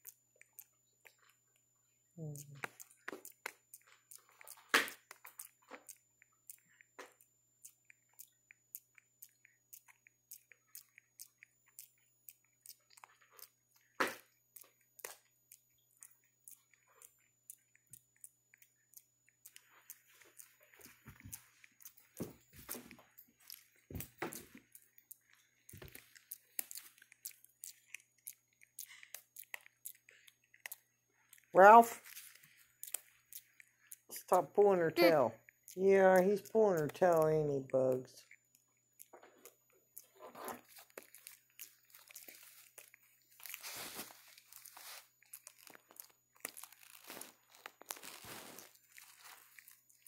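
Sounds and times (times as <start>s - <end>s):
fur rustling against clothing: 43.6s - 44.9s.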